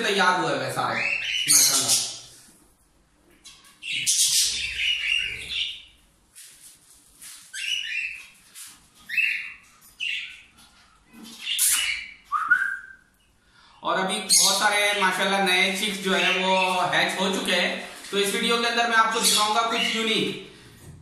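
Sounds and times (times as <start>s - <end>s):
parrots calling: 0.8s - 2.4s, 3.4s - 6.0s, 7.5s - 8.4s, 9.0s - 12.7s, 14.1s - 17.0s.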